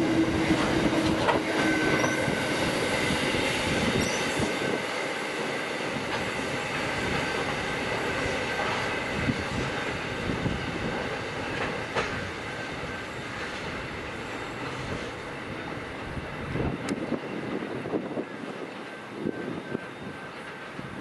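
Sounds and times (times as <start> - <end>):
train wheels clattering over rail joints: 5.4 - 15.2.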